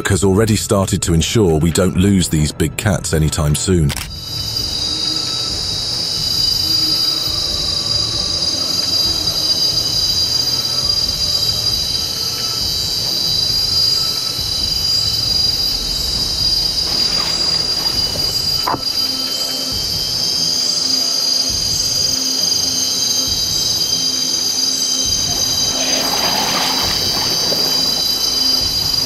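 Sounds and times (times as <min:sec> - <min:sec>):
shrill insect chorus: 0:04.1 - 0:29.0
noisy scuffle: 0:16.8 - 0:18.8, 0:25.3 - 0:29.0.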